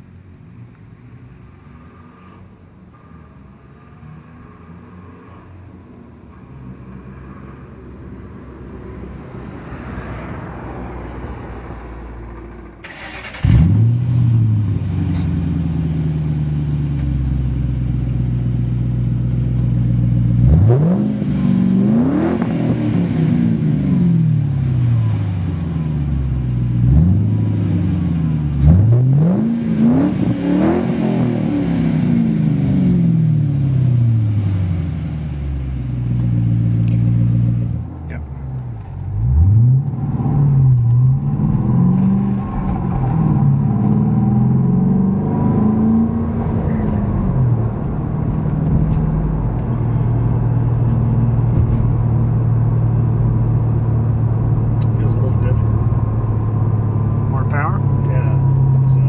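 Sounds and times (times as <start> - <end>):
car engine idling: 46.4 - 59.0.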